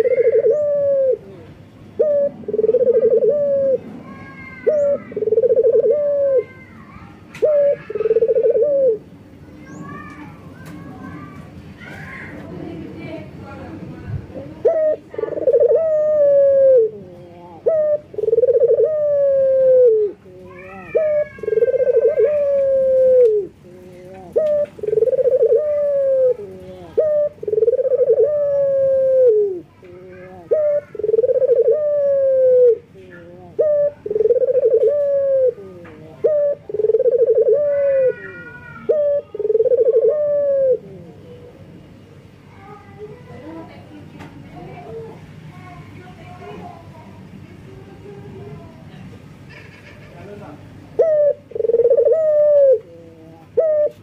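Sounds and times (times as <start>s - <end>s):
dove cooing: 0.0s - 9.2s, 14.3s - 41.7s, 50.9s - 54.0s.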